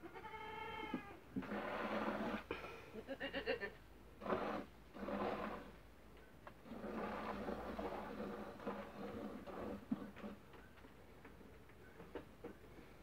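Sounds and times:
goat bleating: 0.0s - 1.2s, 3.0s - 3.8s.

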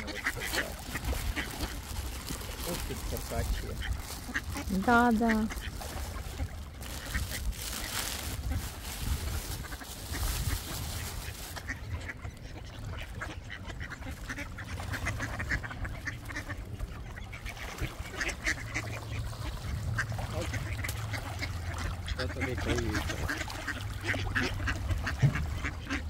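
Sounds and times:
ducks quacking: 0.0s - 26.0s.

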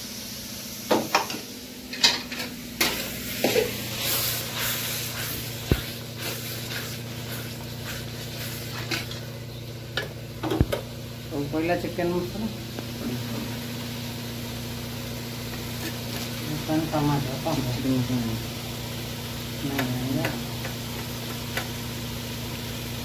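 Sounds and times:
masala sizzling in oil: 0.0s - 23.0s
metal spatula scraping a pan: 2.8s - 9.2s.

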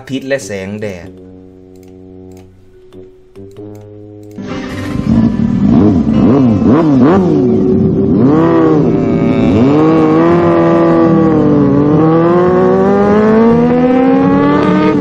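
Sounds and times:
engine revving: 4.3s - 15.0s.

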